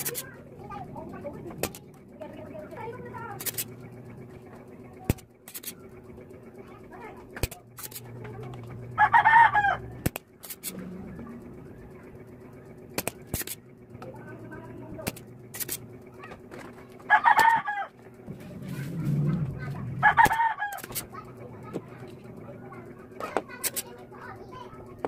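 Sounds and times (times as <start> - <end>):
desoldering pump snapping: 1.5 - 2.1, 3.4 - 3.8, 5.1 - 5.8, 7.3 - 8.8, 10.0 - 10.8, 12.9 - 14.2, 14.9 - 16.8, 20.1 - 21.1, 23.3 - 23.9.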